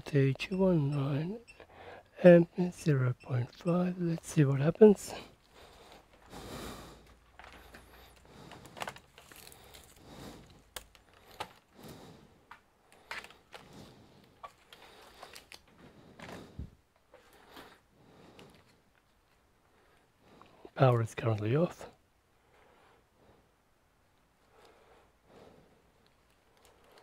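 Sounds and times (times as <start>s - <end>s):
cable handling noise on keyboard: 7.3s - 9.9s, 10.6s - 11.7s, 12.5s - 13.7s.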